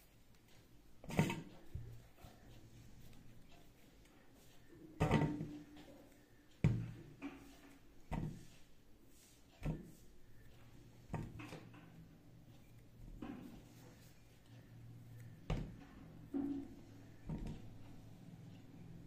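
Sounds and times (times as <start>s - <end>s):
dough thumping in a steel bowl: 1.0s - 1.9s, 4.9s - 5.8s, 6.6s - 8.5s, 11.0s - 11.8s, 15.4s - 17.8s.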